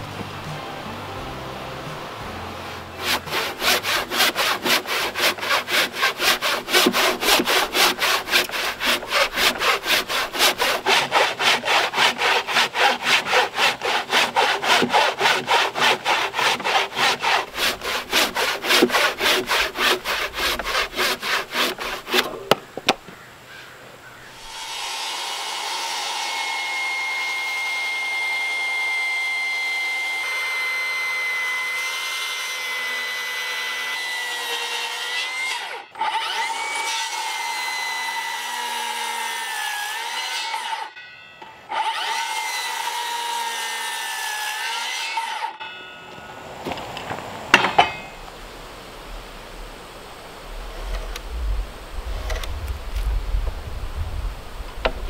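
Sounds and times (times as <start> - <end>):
circular saw whining: 0.0 - 22.8, 24.2 - 55.0
handsaw cutting timber: 2.0 - 22.6, 24.4 - 40.9, 41.7 - 45.6.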